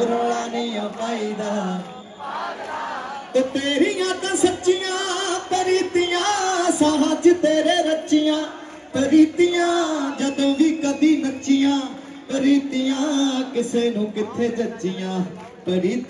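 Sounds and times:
man singing melismatic notes: 3.4s - 15.2s.

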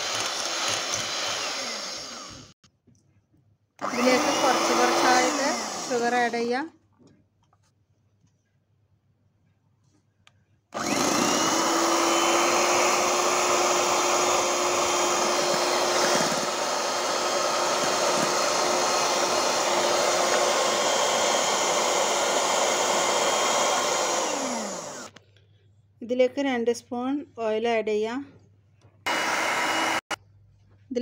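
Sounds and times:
electric hand mixer whirring: 0.0s - 2.6s, 3.8s - 6.6s, 10.8s - 25.2s, 29.1s - 30.2s.

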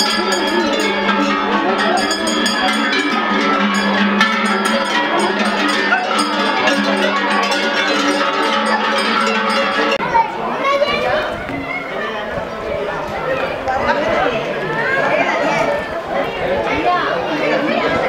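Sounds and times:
cowbells clanking: 0.0s - 10.3s.

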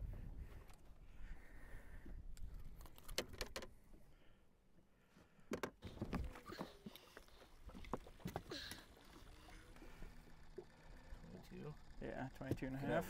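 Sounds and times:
fishing gear knocking and rattling: 2.8s - 3.8s.

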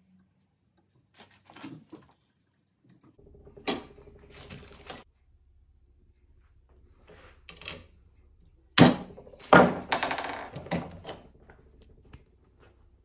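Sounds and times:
metal parts rattling: 4.3s - 5.1s.

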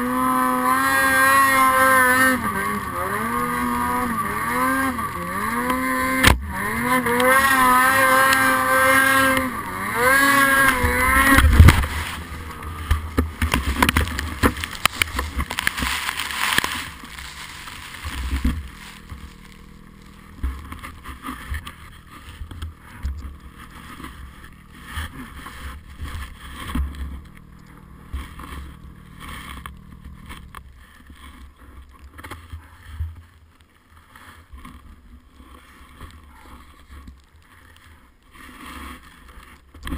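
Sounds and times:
snowmobile engine revving: 0.0s - 31.7s
crash through branches and snow: 0.7s - 22.4s.

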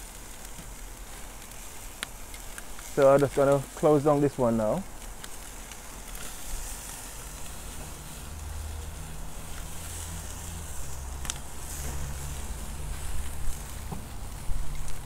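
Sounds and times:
chicken sizzling on a grill: 0.0s - 15.0s
low droning hum: 6.6s - 15.0s.

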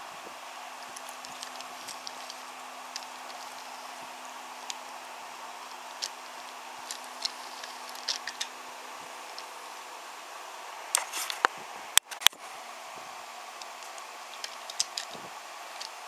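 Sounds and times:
steady background hum: 0.0s - 16.0s
toy train clicking over track joints: 0.8s - 4.9s, 5.5s - 8.6s, 13.6s - 16.0s.

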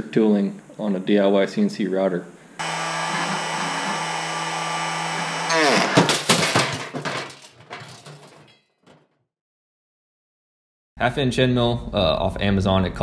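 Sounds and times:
router motor running: 2.6s - 6.1s.

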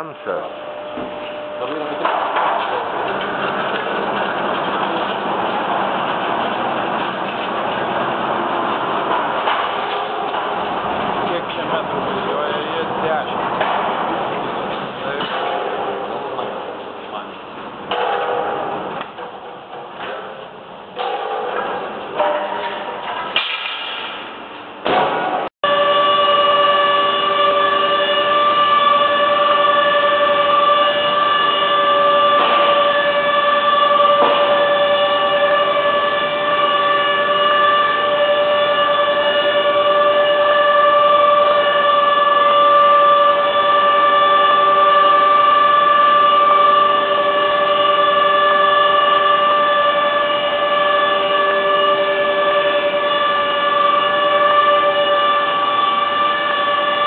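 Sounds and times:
woodworking machine high whine: 0.0s - 14.2s, 25.6s - 57.0s.

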